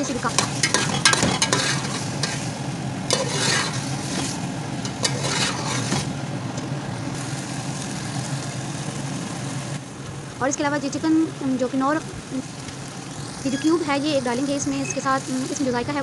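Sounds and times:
food sizzling in oil: 0.0s - 6.2s, 7.0s - 9.8s, 11.0s - 16.0s
spoon scraping a steel pot: 0.4s - 2.4s, 3.1s - 6.1s.

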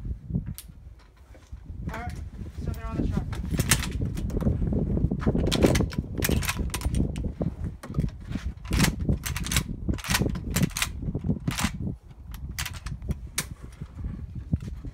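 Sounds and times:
steady low rumble: 0.0s - 14.9s
sharp cracks and clicks: 3.5s - 4.4s, 5.4s - 13.5s.

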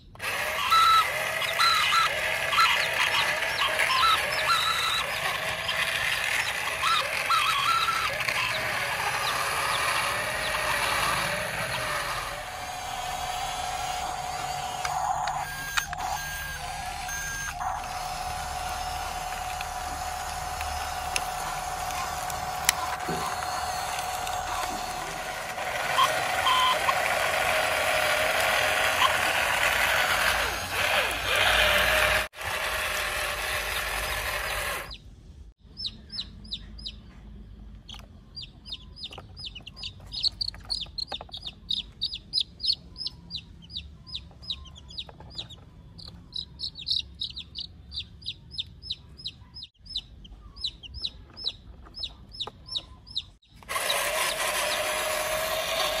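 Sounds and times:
baby chickens peeping: 0.0s - 27.8s, 33.3s - 55.0s
toy vehicle motor whirring: 0.0s - 35.0s, 53.5s - 56.0s.

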